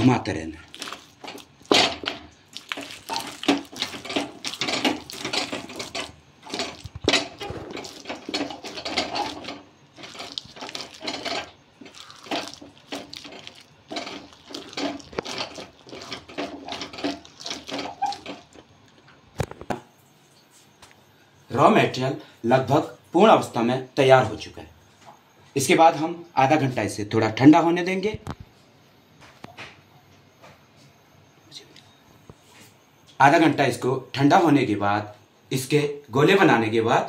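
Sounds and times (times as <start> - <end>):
wooden stick mashing wet paste: 0.6 - 19.0.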